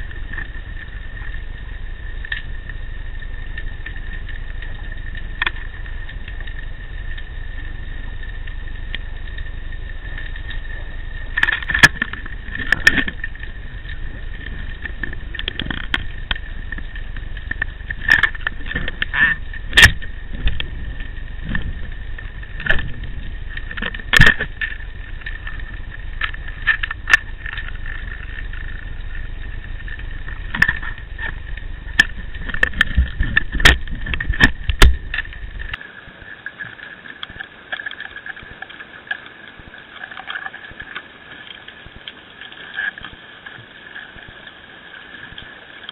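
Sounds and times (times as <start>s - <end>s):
underwater rush of water: 0.0s - 45.9s.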